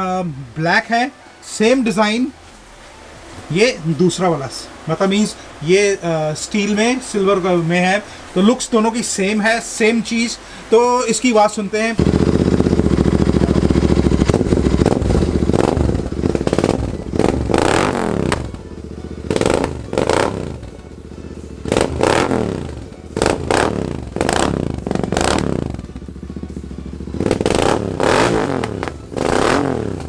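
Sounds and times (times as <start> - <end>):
motorcycle engine revving: 12.0 - 30.0.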